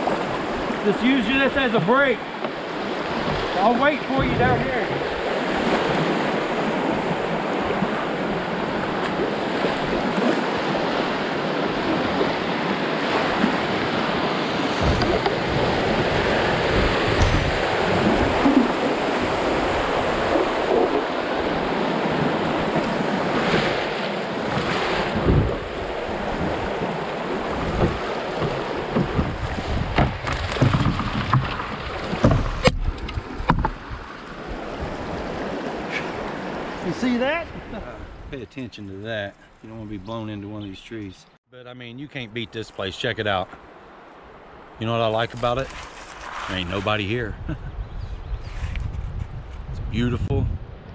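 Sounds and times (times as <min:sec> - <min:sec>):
creek current rushing: 0:00.0 - 0:37.7
wind rumbling on microphone: 0:01.6 - 0:38.6, 0:45.4 - 0:50.9.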